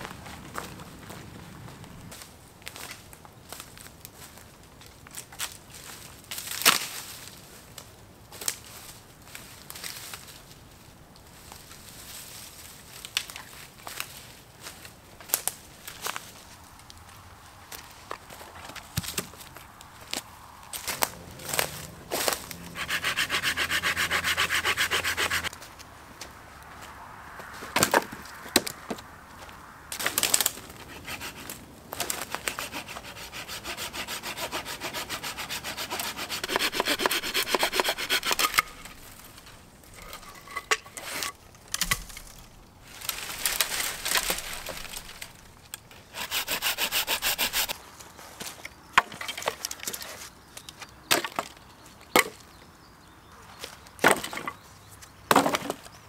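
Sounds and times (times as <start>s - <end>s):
saw cutting branches: 20.7s - 25.6s, 30.0s - 40.1s, 43.0s - 47.8s
wood snapping: 41.6s - 45.8s.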